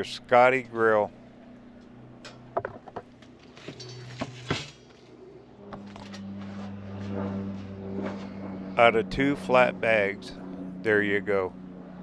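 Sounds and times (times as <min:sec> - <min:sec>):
steady low hum: 0:00.0 - 0:12.0
metal panels clinking: 0:02.2 - 0:05.1.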